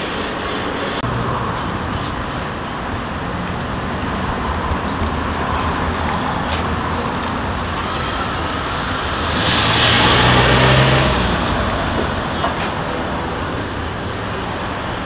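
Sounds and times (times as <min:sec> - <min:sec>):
road traffic noise: 0:00.0 - 0:15.0
motor vehicle passing close: 0:06.9 - 0:14.4.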